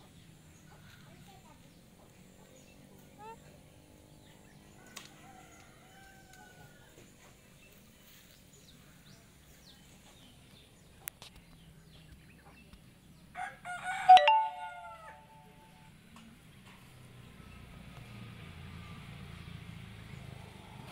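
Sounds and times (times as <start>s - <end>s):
rooster crowing: 5.1s - 6.7s, 13.4s - 15.3s.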